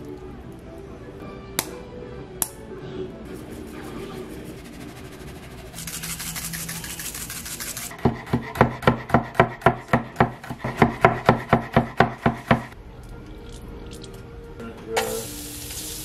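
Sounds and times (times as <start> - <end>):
knife chopping on wooden board: 7.9 - 12.8.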